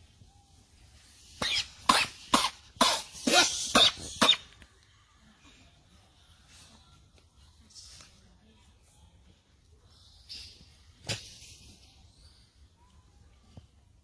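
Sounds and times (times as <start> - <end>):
harsh coughing: 1.8 - 4.5.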